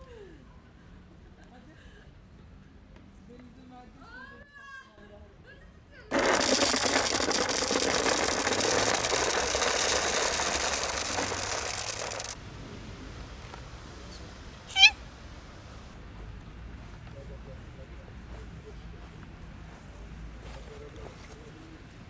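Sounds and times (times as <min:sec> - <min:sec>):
kibble pouring into plastic container: 0:06.1 - 0:12.4
cat meowing: 0:14.7 - 0:15.0.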